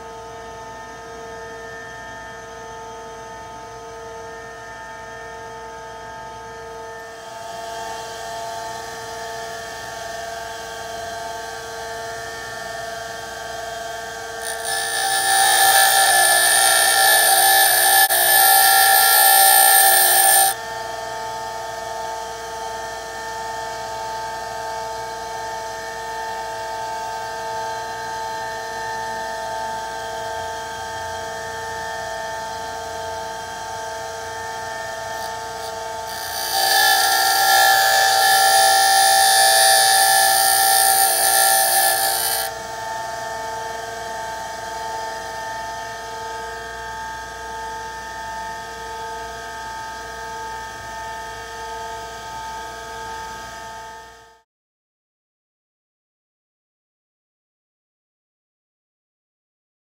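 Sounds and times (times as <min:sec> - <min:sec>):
bench grinder motor whine: 0:10.7 - 0:21.6, 0:28.8 - 0:46.0
drill bit grinding on wheel: 0:14.4 - 0:20.6, 0:35.2 - 0:42.5.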